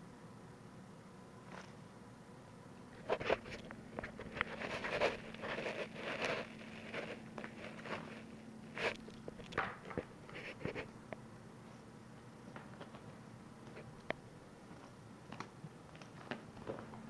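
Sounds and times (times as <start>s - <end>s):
plastic toy scraping and rattling: 3.1s - 9.0s.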